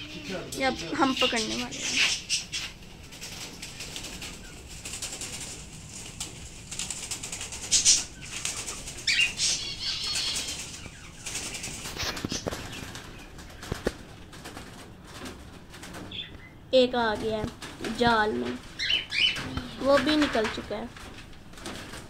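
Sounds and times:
bird calls: 0.0 - 5.6, 7.1 - 14.0, 16.0 - 16.7, 17.8 - 20.6
birds flapping wings: 0.2 - 22.0.

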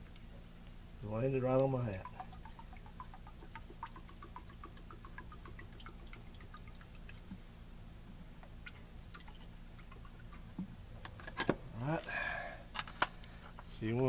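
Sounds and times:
fluid dripping: 1.5 - 7.5, 8.4 - 10.8.

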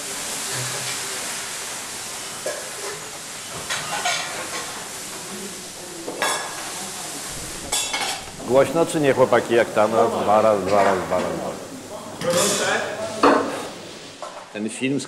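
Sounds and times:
hiss of cooking: 0.0 - 14.6
pots and utensils clinking: 2.1 - 5.3, 6.0 - 6.9, 7.6 - 8.5, 10.6 - 11.5, 12.2 - 14.5.

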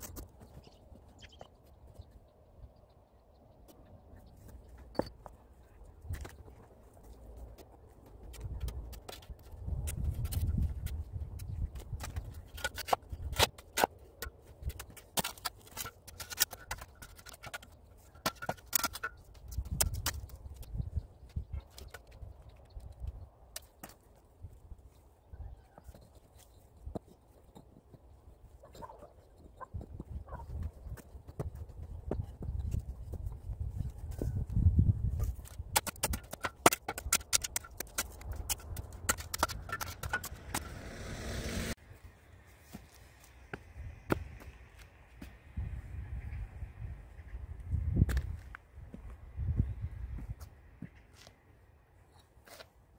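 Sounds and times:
hand tool scraping soil and blocks: 8.4 - 20.6, 35.1 - 41.8
hoe chopping soil and striking stones: 35.4 - 41.8.

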